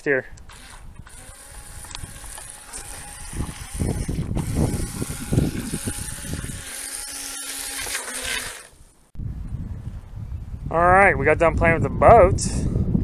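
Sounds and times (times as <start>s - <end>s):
low rumbling: 0.0s - 13.0s
toy speedboat motor whine: 0.5s - 8.8s.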